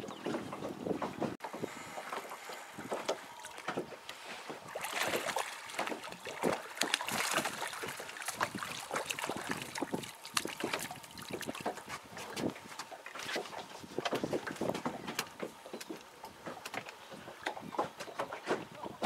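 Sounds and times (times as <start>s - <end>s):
waves lapping against a boat: 0.0s - 19.0s
fish splashing at the surface: 4.5s - 12.4s.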